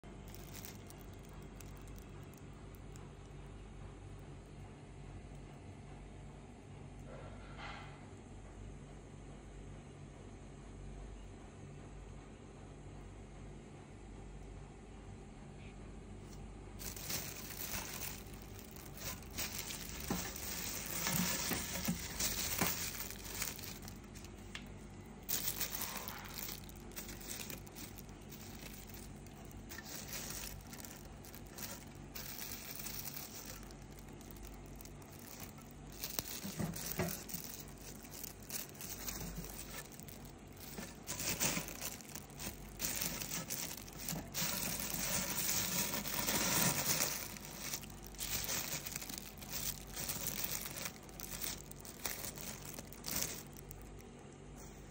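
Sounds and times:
plastic bags crinkling: 0.0 - 3.1, 16.8 - 54.2.

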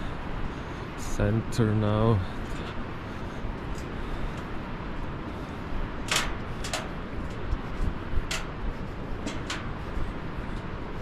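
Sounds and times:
footsteps on metal deck: 3.5 - 11.0.

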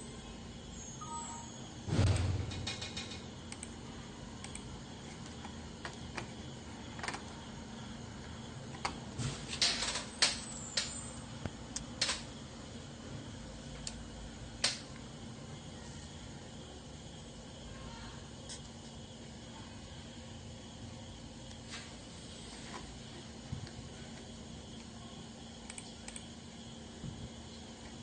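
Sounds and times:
faint steady hum: 0.0 - 28.0.

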